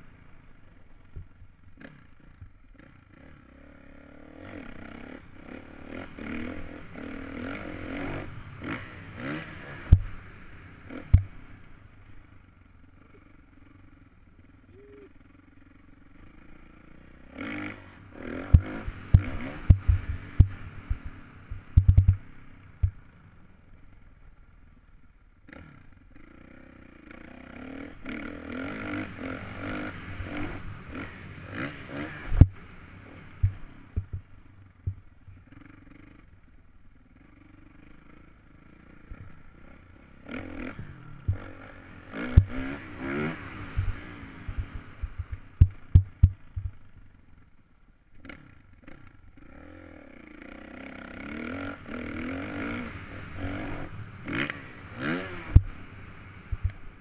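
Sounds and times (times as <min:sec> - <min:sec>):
dirt bike engine revving: 0:01.8 - 0:12.2, 0:14.8 - 0:23.1, 0:25.5 - 0:36.2, 0:37.2 - 0:47.0, 0:48.2 - 0:57.0
sharp thuds and knocks: 0:18.6 - 0:22.2, 0:44.5 - 0:46.8.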